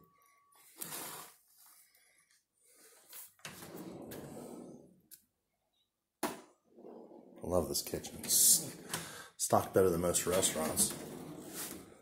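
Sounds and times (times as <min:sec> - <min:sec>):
drawer sliding on runners: 0:03.4 - 0:04.9, 0:06.8 - 0:09.0, 0:10.2 - 0:12.0.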